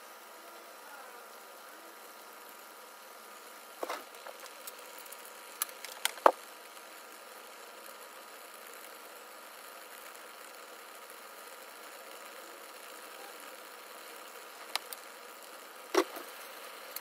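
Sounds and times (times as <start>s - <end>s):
kitchen hum: 0.6s - 7.8s, 12.0s - 17.0s.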